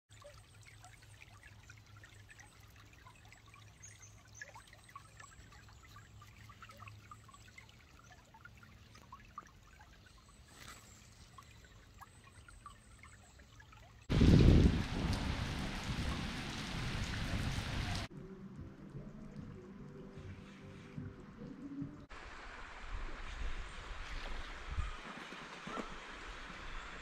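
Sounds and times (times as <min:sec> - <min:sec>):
stream trickling over stones: 0:00.1 - 0:18.1.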